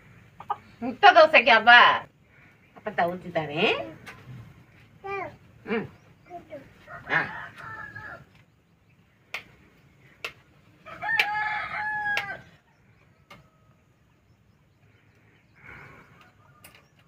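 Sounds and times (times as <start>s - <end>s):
rooster crowing: 6.8s - 8.3s, 10.8s - 13.9s.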